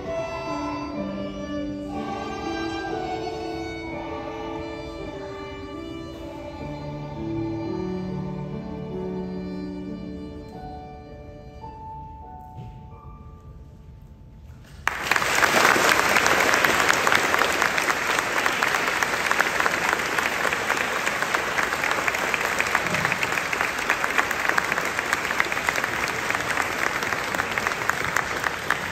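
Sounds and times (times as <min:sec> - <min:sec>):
audience applauding: 0:14.8 - 0:28.9.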